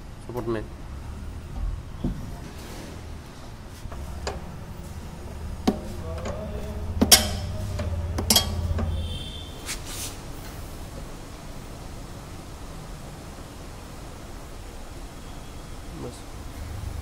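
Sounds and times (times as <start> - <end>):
steady low hum: 0.0 - 14.3
metallic clanks of axle parts: 5.6 - 9.4.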